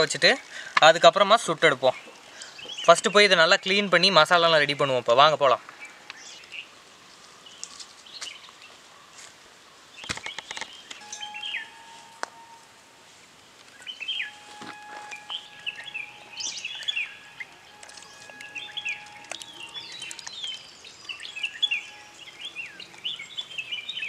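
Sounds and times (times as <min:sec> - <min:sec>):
birds chirping: 0:00.0 - 0:09.2, 0:09.8 - 0:12.8, 0:13.4 - 0:24.0
whistled bird notes: 0:10.3 - 0:12.7, 0:13.7 - 0:24.0.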